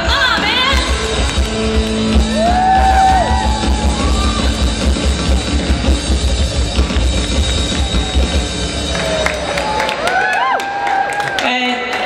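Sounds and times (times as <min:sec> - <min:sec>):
bass guitar: 0:00.0 - 0:09.8
fast drum beat: 0:00.0 - 0:09.9
electric guitar: 0:00.0 - 0:10.4.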